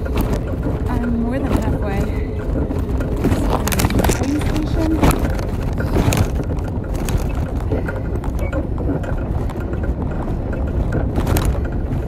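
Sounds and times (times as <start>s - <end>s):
bicycle tyres on asphalt: 0.0s - 12.0s
wind on microphone: 0.0s - 12.0s.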